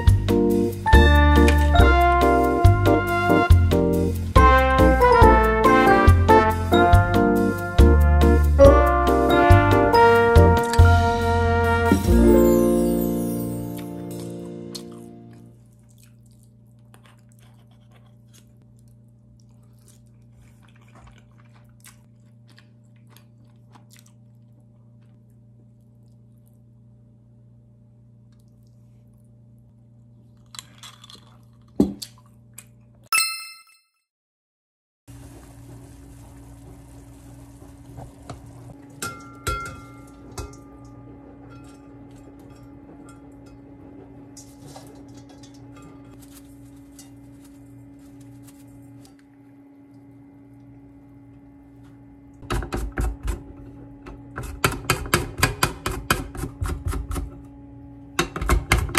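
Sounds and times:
person chewing food: 14.2s - 26.6s, 30.1s - 33.0s
bean sprouts rustling into pot: 46.2s - 49.2s.

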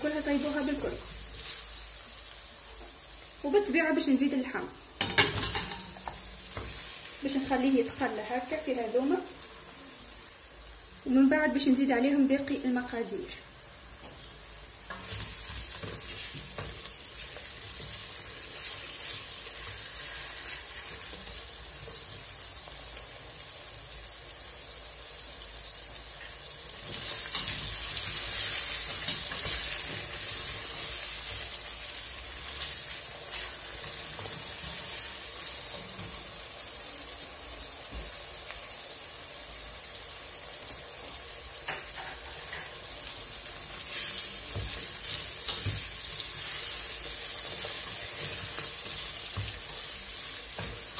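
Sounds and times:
meat and onion sizzling: 0.0s - 50.9s.

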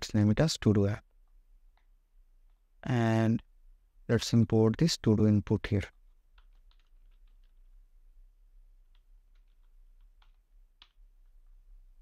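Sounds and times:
faint keyboard keystrokes: 5.9s - 7.8s, 8.8s - 11.6s.

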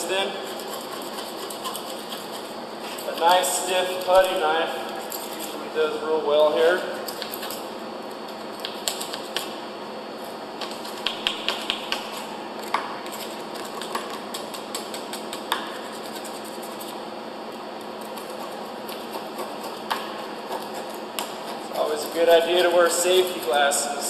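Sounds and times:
putty knife scraping metal: 0.4s - 3.2s.

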